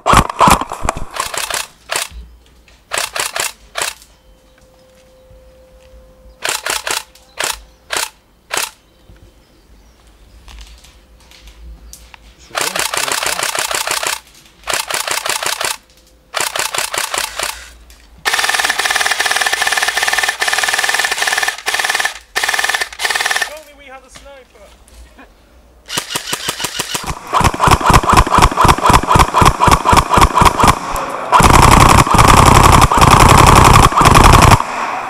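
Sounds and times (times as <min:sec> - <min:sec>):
airsoft guns firing: 0:00.0 - 0:02.1, 0:12.6 - 0:17.7, 0:18.3 - 0:23.6, 0:25.9 - 0:35.0.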